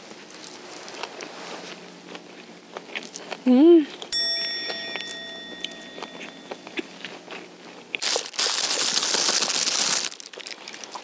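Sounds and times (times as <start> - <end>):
crinkling and rustling: 6.7 - 11.0.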